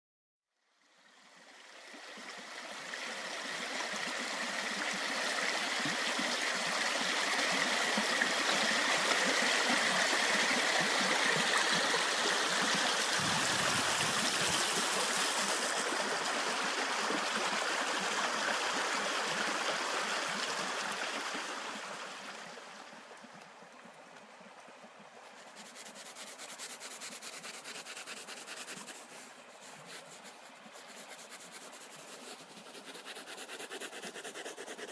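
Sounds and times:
stream running over stones: 0:00.8 - 0:34.9
pencil scratching on paper: 0:25.8 - 0:34.9.

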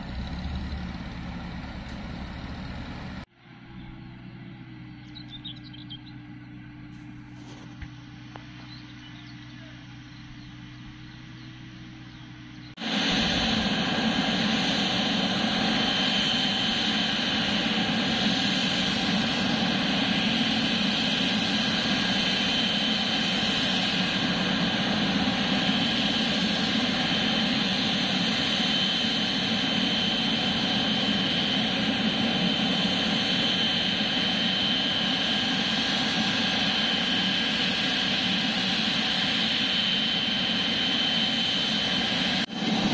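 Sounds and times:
jet engines roaring: 0:00.0 - 0:05.3, 0:12.8 - 0:42.9
faint birds: 0:00.0 - 0:12.8
high engine whine: 0:00.0 - 0:42.9.

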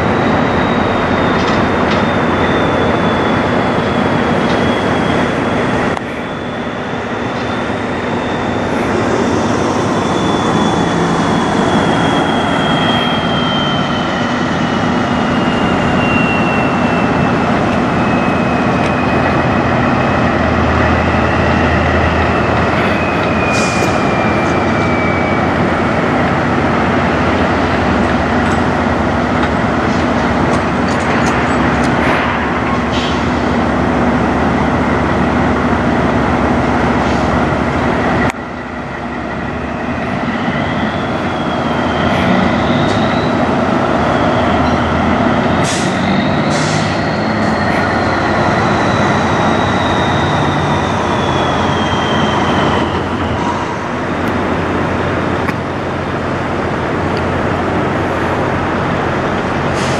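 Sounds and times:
high whine falling in pitch: 0:00.0 - 0:45.5
heavy vehicle running: 0:00.0 - 0:59.9.

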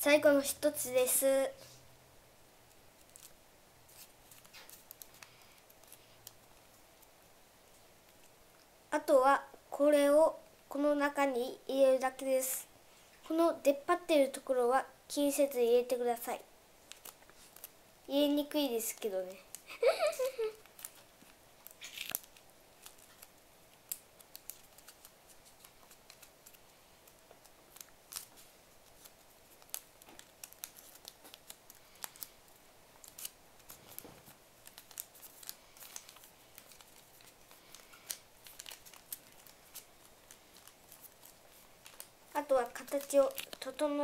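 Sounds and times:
paper crinkling and clicking: 0:03.0 - 0:07.1, 0:16.8 - 0:17.7, 0:18.9 - 0:44.0.

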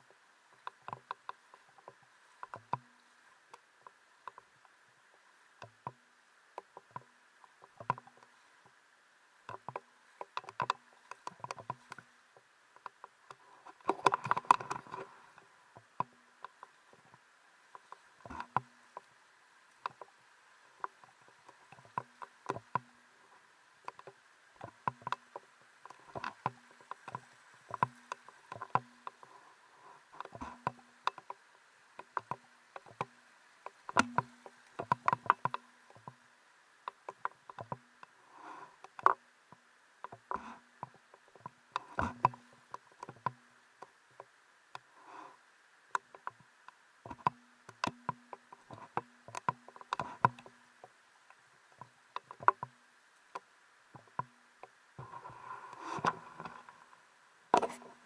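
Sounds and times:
small water splashes: 0:00.0 - 0:58.0.

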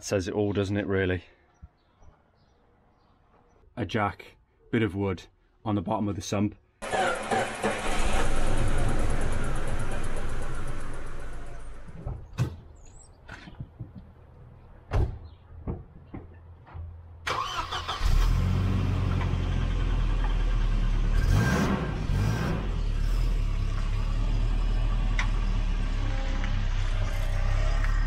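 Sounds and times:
engine revving: 0:06.8 - 0:11.9, 0:17.3 - 0:28.0
car engine starting and idling: 0:06.8 - 0:12.1, 0:17.2 - 0:28.0.

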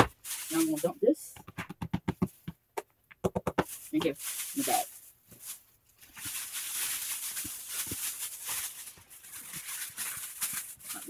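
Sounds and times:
plastic bag rustling: 0:00.0 - 0:01.2, 0:03.6 - 0:11.0
cat litter pouring into bag: 0:03.8 - 0:05.0, 0:06.2 - 0:11.0.

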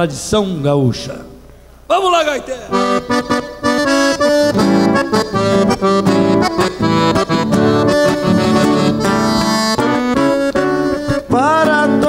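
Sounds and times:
accordion playing: 0:02.7 - 0:12.0.

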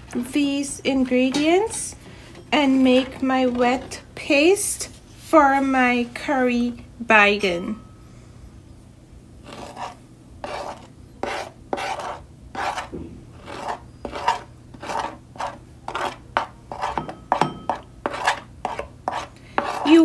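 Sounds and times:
metal spoon scraping a plate: 0:09.5 - 0:19.9.

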